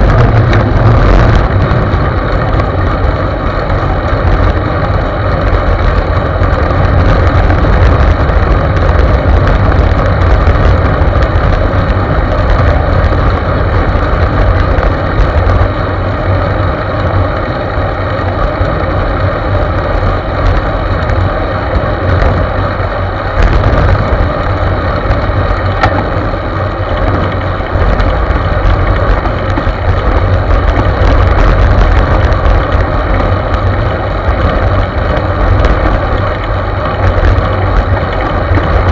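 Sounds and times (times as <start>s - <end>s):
wind rushing over microphone: 0.0s - 38.9s.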